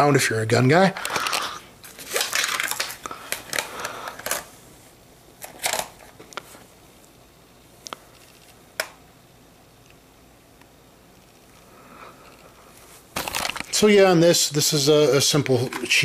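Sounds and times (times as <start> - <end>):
plastic rustling and scraping: 1.0 - 4.5, 12.3 - 13.9.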